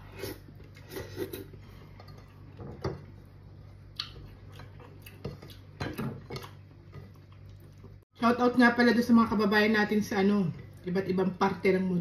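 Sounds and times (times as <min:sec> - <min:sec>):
chewing: 0:03.9 - 0:08.0.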